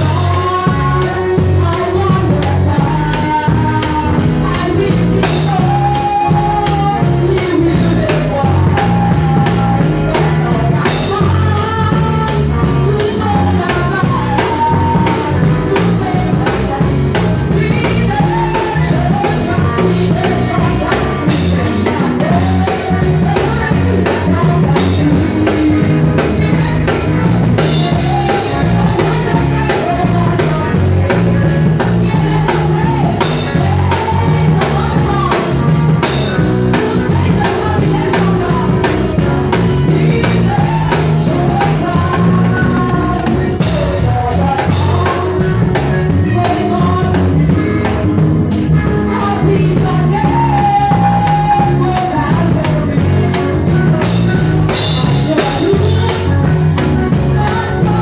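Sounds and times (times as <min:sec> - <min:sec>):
drum kit: 0:00.0 - 0:58.0
low bass notes: 0:00.0 - 0:58.0
woman singing into microphone: 0:00.0 - 0:58.0.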